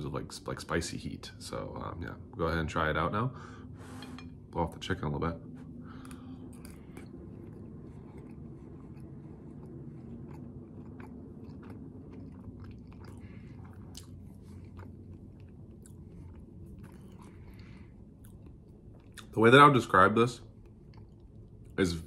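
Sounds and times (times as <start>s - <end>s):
low background hum: 0.0s - 22.0s
person chewing crispy food: 5.9s - 19.4s, 20.4s - 22.0s.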